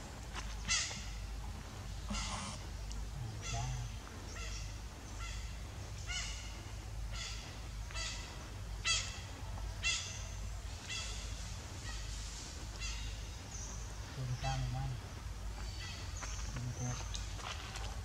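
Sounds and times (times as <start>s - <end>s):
low steady hum: 0.0s - 18.0s
animal calling in high notes: 2.1s - 2.6s.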